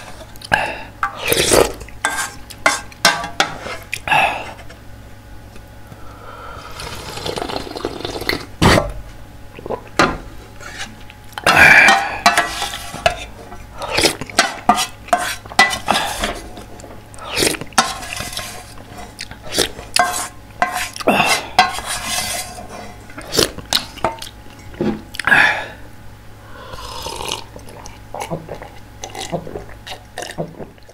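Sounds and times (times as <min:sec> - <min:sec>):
slurping and gulping broth: 0:06.6 - 0:08.5, 0:17.2 - 0:19.8, 0:26.7 - 0:30.9.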